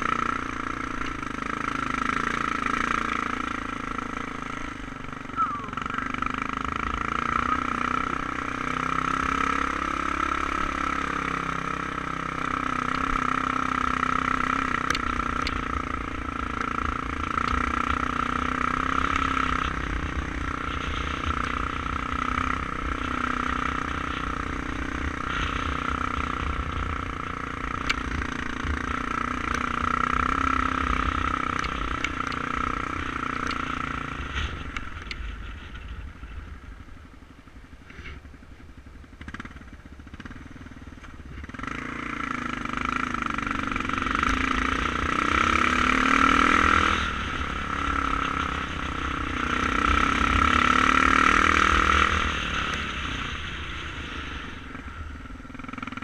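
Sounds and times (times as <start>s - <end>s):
motorcycle engine under load: 0.0s - 56.0s
wind rumble on microphone: 17.7s - 39.8s.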